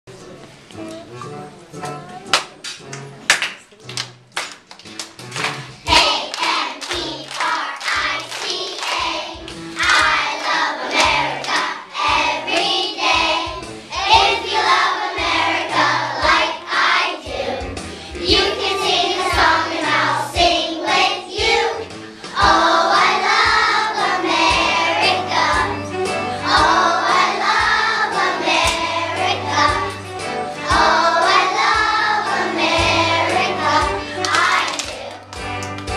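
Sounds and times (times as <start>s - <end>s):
musical accompaniment: 0.1s - 35.9s
rhythmic hand clapping: 1.8s - 35.9s
children's choir singing: 5.9s - 35.3s.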